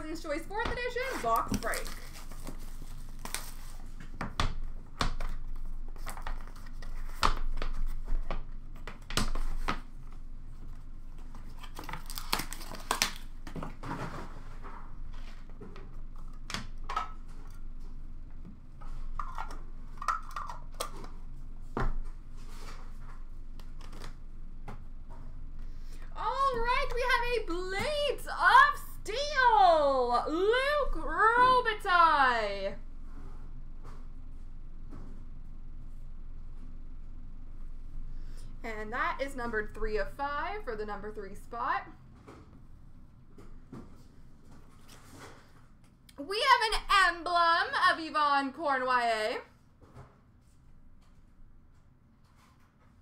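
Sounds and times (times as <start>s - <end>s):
wrappers crinkling: 1.0s - 4.0s, 11.3s - 13.4s.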